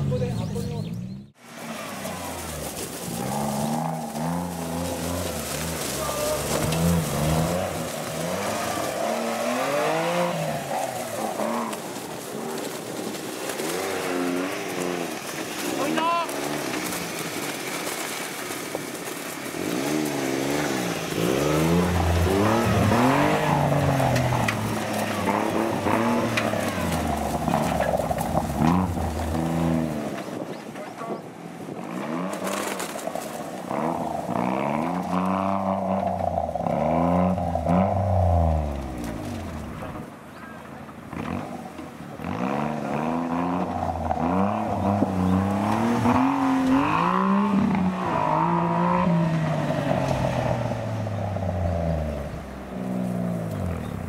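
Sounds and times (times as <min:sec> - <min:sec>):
engine revving under load: 0:00.0 - 0:12.0, 0:19.5 - 0:30.2, 0:33.6 - 0:40.1, 0:41.1 - 0:54.0.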